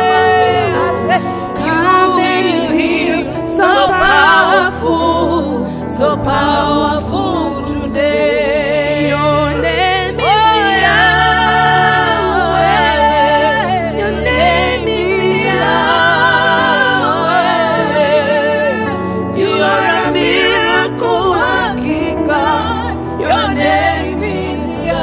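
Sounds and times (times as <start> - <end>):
held chords: 0.0 - 25.0
person singing with vibrato: 0.0 - 25.0.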